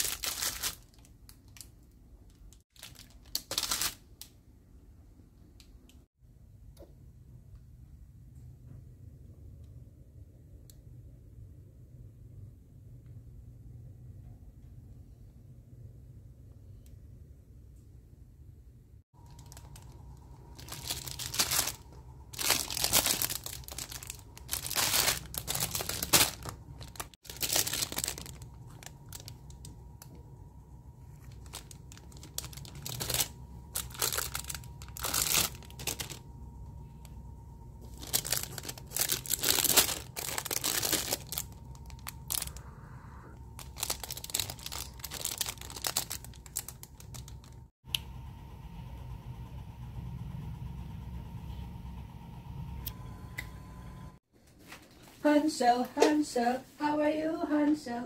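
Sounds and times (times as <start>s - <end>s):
plastic bags crinkling: 0.0s - 4.2s, 19.2s - 30.2s, 31.1s - 36.3s, 37.8s - 42.6s, 43.5s - 47.7s.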